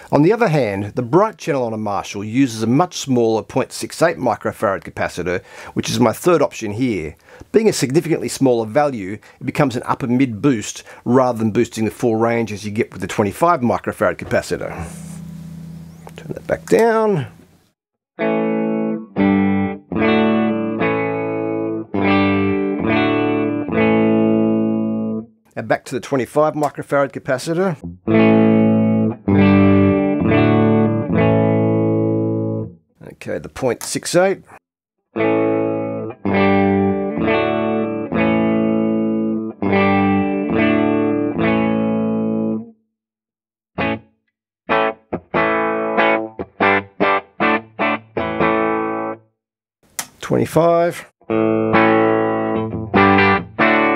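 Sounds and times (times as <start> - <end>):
electric guitar strumming chords: 14.1 - 17.0, 18.2 - 25.2, 27.8 - 32.7, 35.2 - 42.7, 43.8 - 44.0, 44.7 - 49.2, 51.3 - 53.9.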